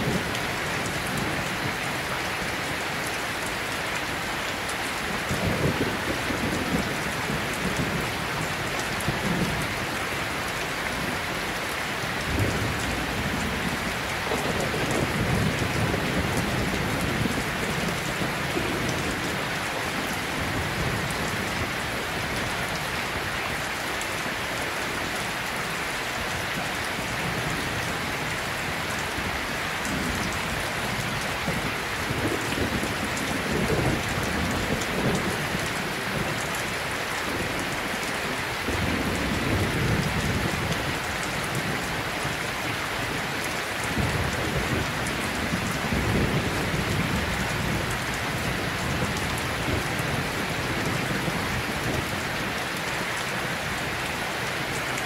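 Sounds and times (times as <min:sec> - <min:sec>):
steady rain: 0:00.0 - 0:55.0.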